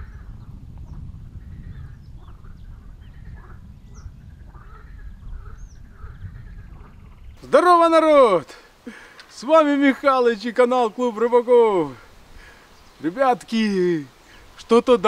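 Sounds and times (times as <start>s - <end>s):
birds chirping and whistling: 0.0s - 7.5s.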